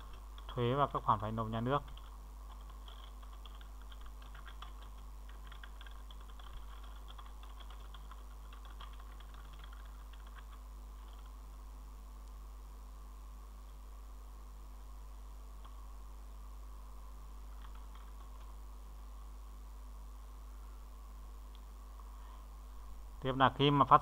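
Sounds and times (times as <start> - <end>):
keyboard typing: 0.0 - 0.6, 1.8 - 11.4, 17.5 - 18.6
steady low hum: 0.0 - 24.0.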